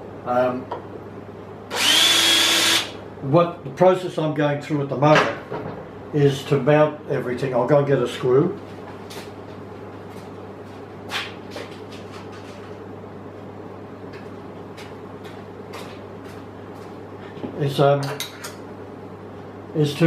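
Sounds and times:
air conditioner humming: 0:00.0 - 0:20.0.

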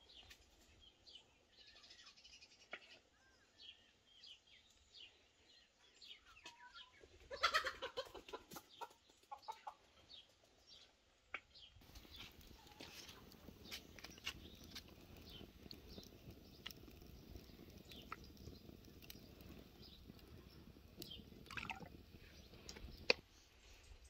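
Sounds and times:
small birds chirping: 0:00.0 - 0:24.0
chickens clucking: 0:06.4 - 0:09.9.

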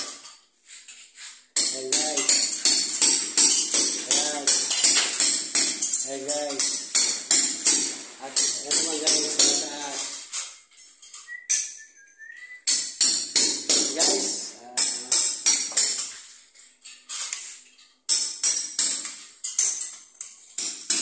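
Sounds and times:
person speaking: 0:01.6 - 0:02.5, 0:03.8 - 0:04.8, 0:06.0 - 0:06.7, 0:08.0 - 0:10.2, 0:13.6 - 0:15.4.

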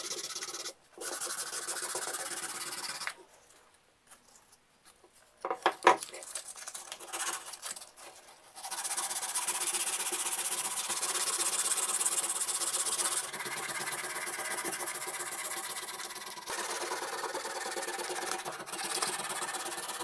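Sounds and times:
sandpaper rasping on wood: 0:00.0 - 0:03.1, 0:08.6 - 0:20.0.

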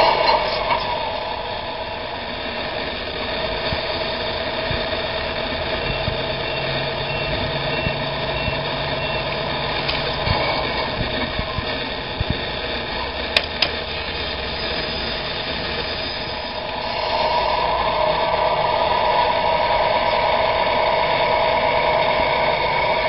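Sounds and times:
model truck mechanical whir: 0:00.0 - 0:23.0
sharp clicks: 0:13.3 - 0:13.8.

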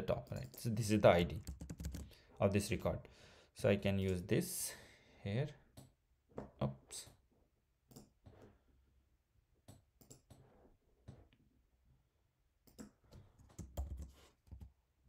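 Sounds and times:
keyboard and mouse clicks: 0:07.9 - 0:08.4, 0:09.6 - 0:11.3, 0:12.6 - 0:14.7.

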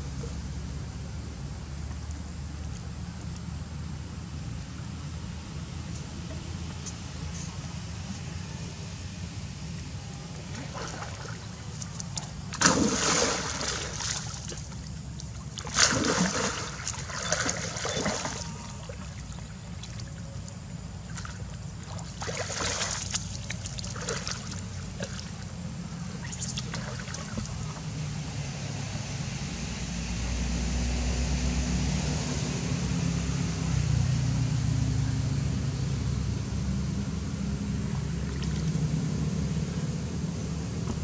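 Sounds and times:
steady low hum: 0:00.0 - 0:41.0
animals splashing in water: 0:06.7 - 0:28.3, 0:37.8 - 0:40.1.

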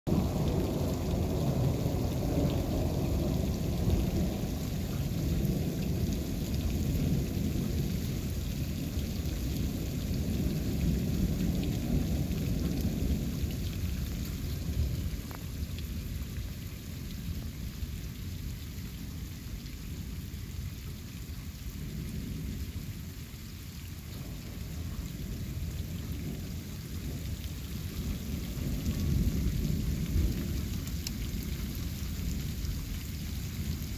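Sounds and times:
thunder rumbling: 0:00.1 - 0:16.5, 0:24.1 - 0:33.9
steady rain: 0:00.1 - 0:33.9.

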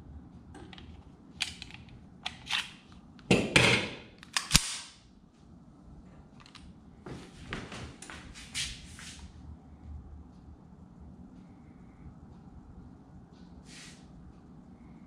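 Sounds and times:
pistol slide snapping forward: 0:04.2 - 0:05.0.

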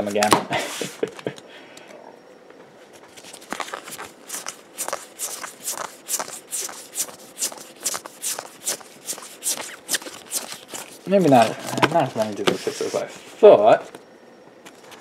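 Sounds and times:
papery swishes of cards flipped: 0:03.0 - 0:13.4.

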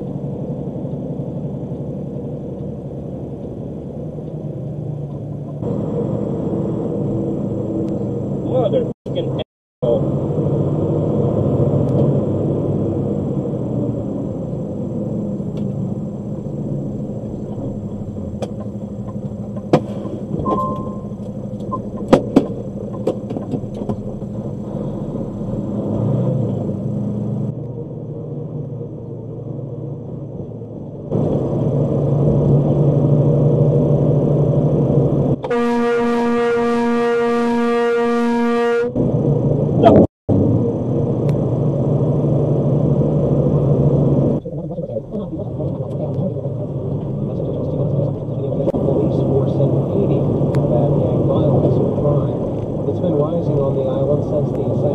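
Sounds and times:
car road and engine noise: 0:00.0 - 0:54.9
brief beep: 0:20.4 - 0:21.8
truck air horn blast: 0:35.4 - 0:39.0.

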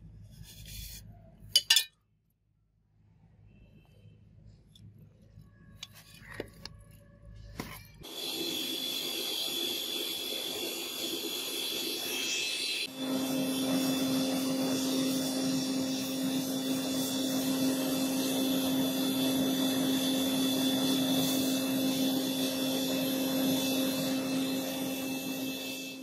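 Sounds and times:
furnace air blower humming: 0:08.0 - 0:26.0.

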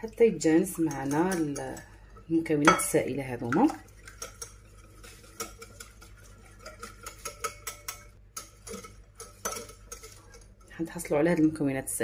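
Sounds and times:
whisk clicking against glass bowl: 0:02.6 - 0:10.8.

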